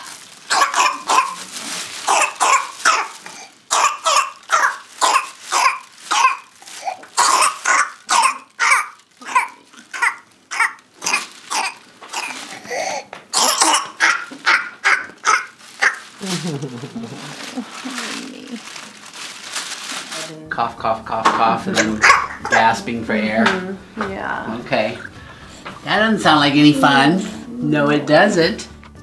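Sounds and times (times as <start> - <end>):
baby coughing: 0.0 - 16.0, 21.7 - 22.8.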